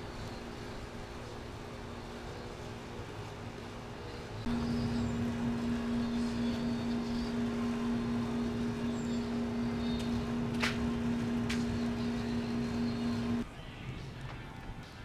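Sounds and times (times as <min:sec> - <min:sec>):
steady hum: 0:00.0 - 0:13.4
wood fire popping: 0:04.4 - 0:13.4.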